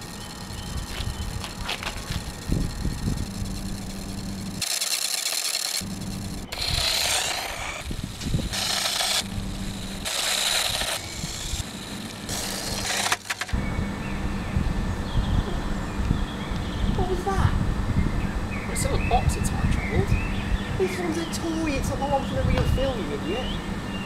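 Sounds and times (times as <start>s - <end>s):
low rumbling hum: 0.0s - 24.0s
toy car hissing bursts: 4.6s - 5.8s, 6.5s - 9.3s, 9.9s - 13.5s.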